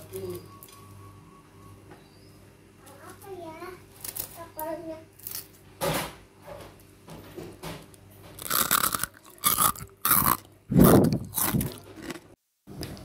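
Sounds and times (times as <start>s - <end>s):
crispy snack crunching: 5.2s - 5.6s, 8.4s - 12.4s.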